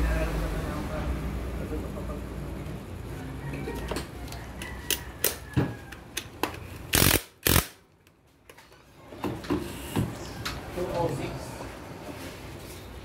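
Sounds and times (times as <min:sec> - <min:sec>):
socket ratchet clicking: 0:06.2 - 0:07.8.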